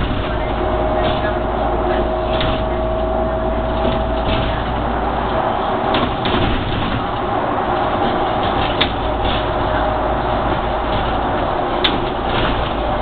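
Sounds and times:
bus engine and road noise: 0:00.0 - 0:13.0
constant whine: 0:00.0 - 0:13.0
short rattles: 0:00.0 - 0:13.0.

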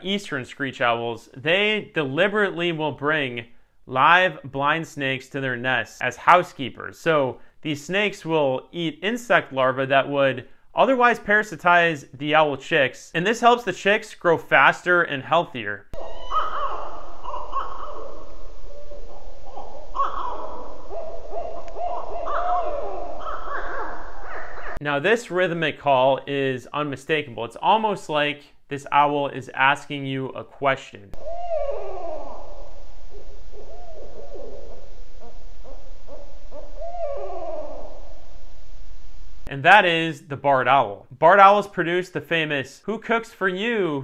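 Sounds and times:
owl hooting: 0:16.0 - 0:24.8, 0:31.2 - 0:39.0.

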